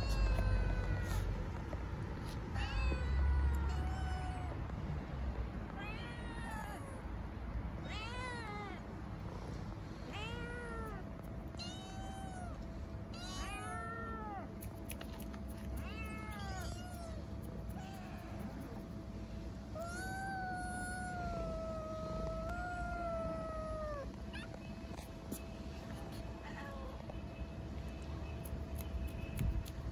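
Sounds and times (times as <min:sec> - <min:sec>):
kittens meowing: 0:00.0 - 0:01.6, 0:02.4 - 0:04.6, 0:05.8 - 0:07.1, 0:10.1 - 0:15.0, 0:15.7 - 0:18.8, 0:19.8 - 0:25.4, 0:26.0 - 0:27.1.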